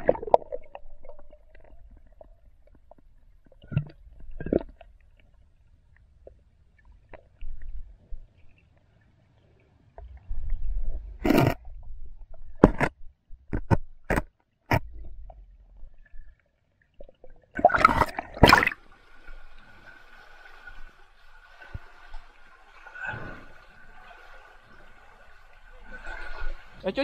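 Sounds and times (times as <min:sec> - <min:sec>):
muffled underwater rumble: 0:10.0 - 0:13.5
sharp knocks and clicks: 0:12.5 - 0:15.0
running water: 0:14.7 - 0:27.0.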